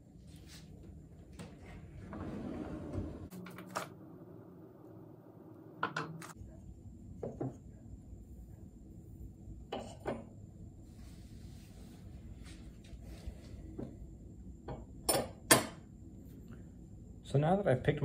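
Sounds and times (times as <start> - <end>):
drawer sliding open: 2.0 - 3.3.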